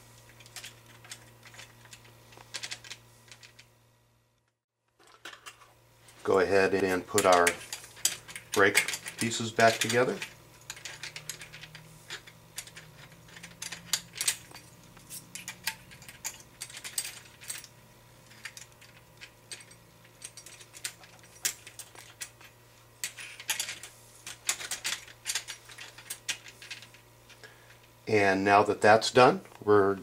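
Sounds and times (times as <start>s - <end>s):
small metal parts clicking: 0.2s - 3.7s, 6.8s - 27.8s.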